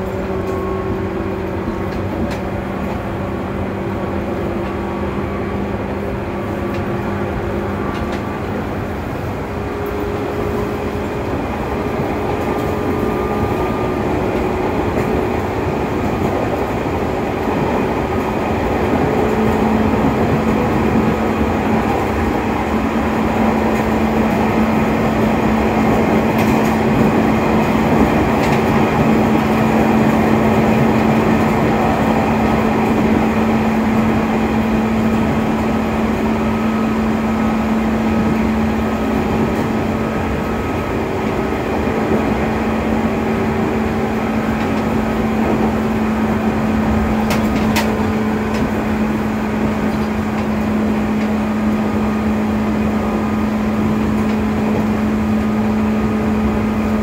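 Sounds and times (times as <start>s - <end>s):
train wheels rumbling on track: 0.0s - 57.0s.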